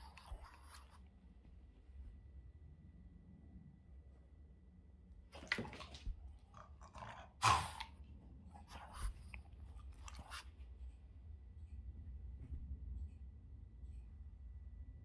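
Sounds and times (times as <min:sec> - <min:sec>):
dog mouthing sounds: 0:00.0 - 0:01.1, 0:05.4 - 0:10.6.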